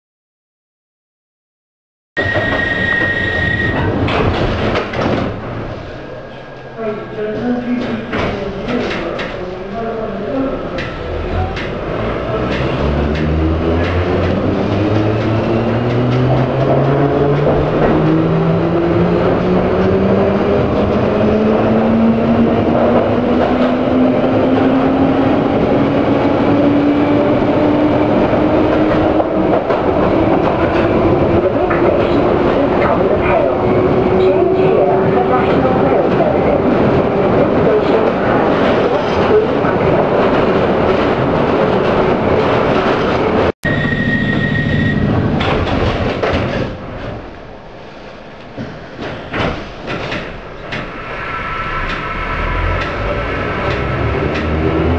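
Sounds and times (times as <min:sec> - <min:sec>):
train running rumble: 0:03.7 - 0:43.5, 0:44.3 - 0:54.9
sliding doors closing: 0:10.7 - 0:32.6, 0:44.3 - 0:54.9.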